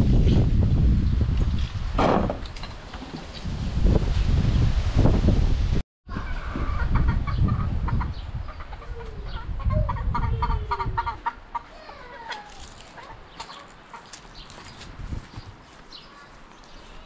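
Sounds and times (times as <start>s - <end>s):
chickens clucking: 6.1s - 14.4s.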